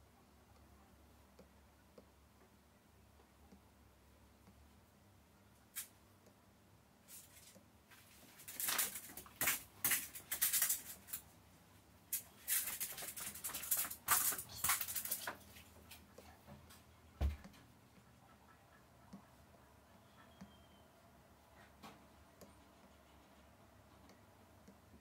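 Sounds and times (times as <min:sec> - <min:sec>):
stylus scratching on glass screen: 0:22.4 - 0:23.6.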